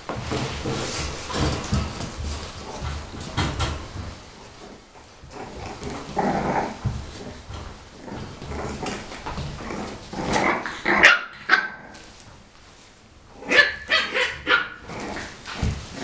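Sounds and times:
puppies barking: 0:10.8 - 0:12.0, 0:13.5 - 0:14.9.

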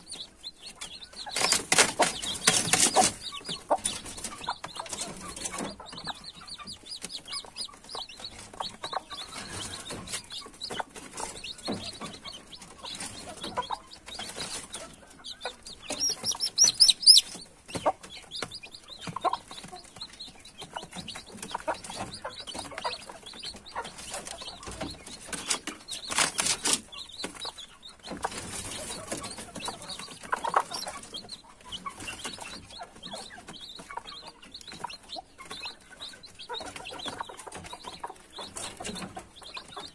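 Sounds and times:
chicks peeping: 0:00.0 - 0:39.9
hen clucking: 0:00.0 - 0:39.9.

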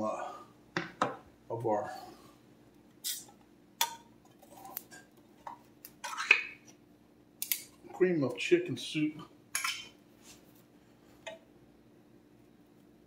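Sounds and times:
faint steady hum: 0:00.0 - 0:13.0
kitchen utensils clinking: 0:09.6 - 0:10.0.

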